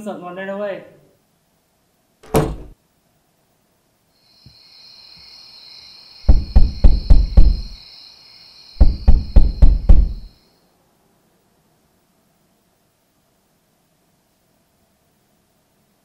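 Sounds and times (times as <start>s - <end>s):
door shutting with a bang: 2.2s - 2.8s, 6.3s - 7.8s, 8.8s - 10.3s
heavy knocks on a door: 2.2s - 2.8s, 6.3s - 7.8s, 8.8s - 10.3s
crickets chirring: 4.1s - 10.7s.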